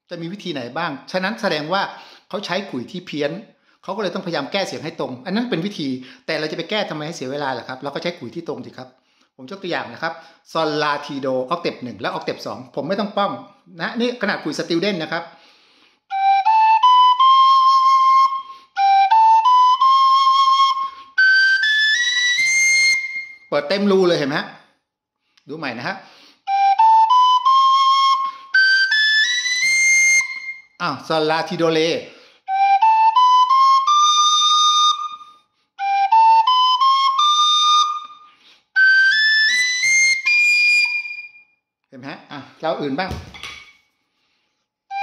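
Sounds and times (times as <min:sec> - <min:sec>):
flute playing rising notes: 0:16.1 - 0:23.5, 0:26.5 - 0:30.7, 0:32.5 - 0:41.4.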